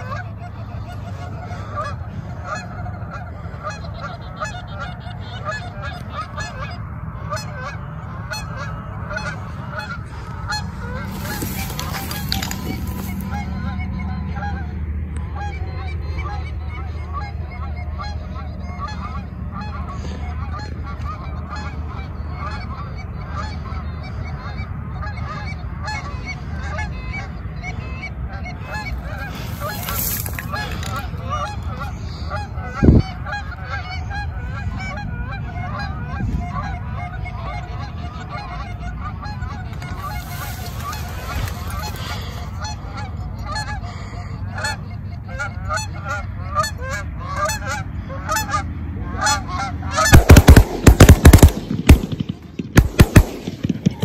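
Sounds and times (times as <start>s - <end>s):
geese honking: 0.0s - 54.0s.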